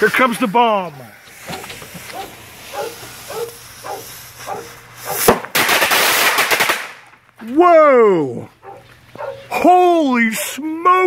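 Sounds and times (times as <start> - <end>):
hissing gush of sparks: 1.2 - 6.7
firework crack: 1.2 - 7.4
dog barking: 1.4 - 5.3, 8.6 - 9.6.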